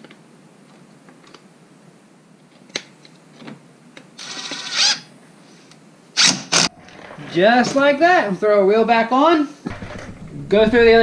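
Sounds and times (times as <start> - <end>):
loud clatters: 9.7 - 11.0.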